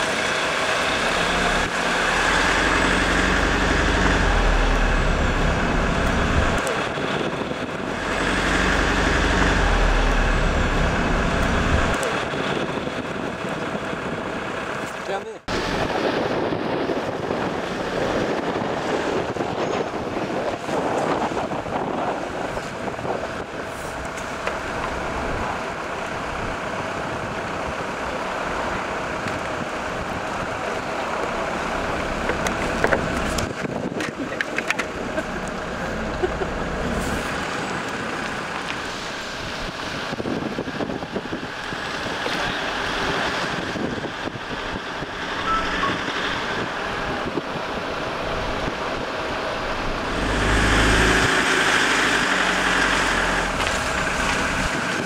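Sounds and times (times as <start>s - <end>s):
loud rushing with low rumble: 0.0s - 34.2s, 34.9s - 55.0s
vehicle running noise: 0.0s - 55.0s
wind on microphone: 15.5s - 27.8s, 29.2s - 55.0s.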